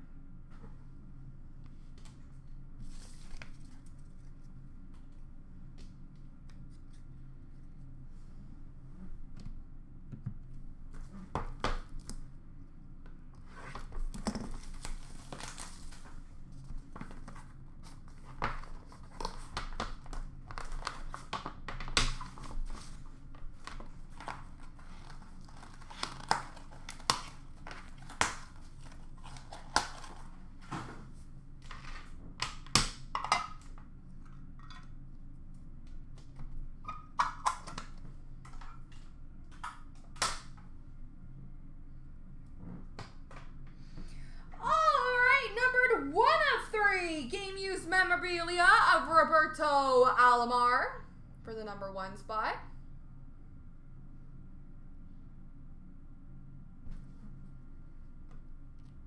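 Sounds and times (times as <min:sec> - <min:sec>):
packaging crinkling and tearing: 0:14.0 - 0:16.2, 0:16.8 - 0:30.5.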